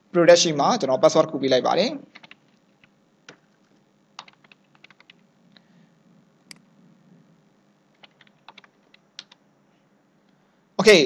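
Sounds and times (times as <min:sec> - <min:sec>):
faint low hum: 0:00.0 - 0:11.0
keyboard keystrokes: 0:02.2 - 0:02.4, 0:04.2 - 0:05.2, 0:08.0 - 0:09.4.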